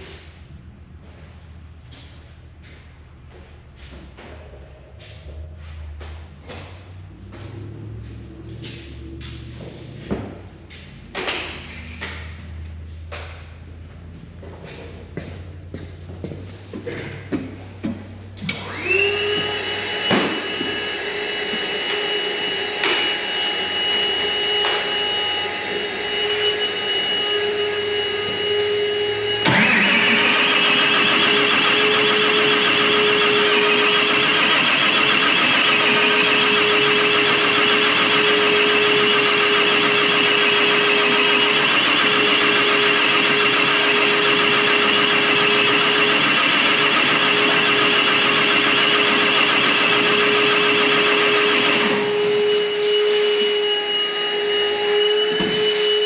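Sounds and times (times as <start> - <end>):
machine whining: 18.3 - 56.0.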